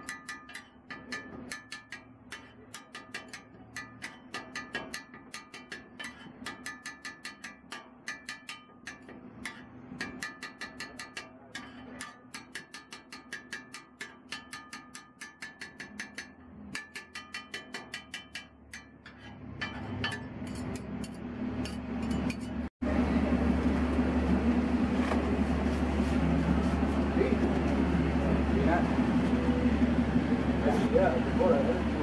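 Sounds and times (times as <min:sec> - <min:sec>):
metal spatula chopping on griddle: 0:00.0 - 0:22.6
background din with low hum: 0:00.0 - 0:32.0.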